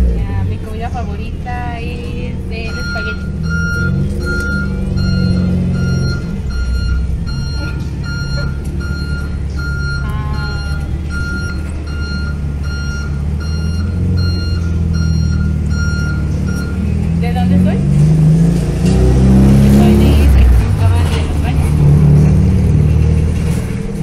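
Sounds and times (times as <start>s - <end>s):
truck engine idling: 0.0s - 24.0s
reversing alarm beeping: 2.6s - 17.6s.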